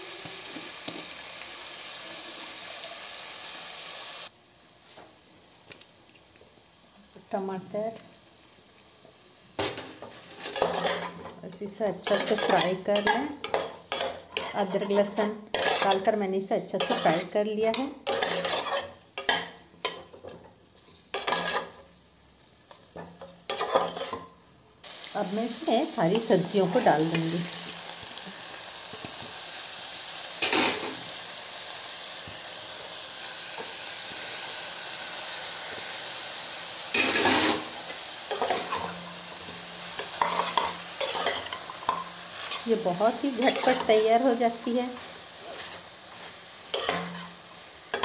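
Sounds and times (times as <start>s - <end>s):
faint hiss: 0.0s - 10.5s, 24.5s - 48.0s
chicken sizzling in butter: 0.0s - 48.0s.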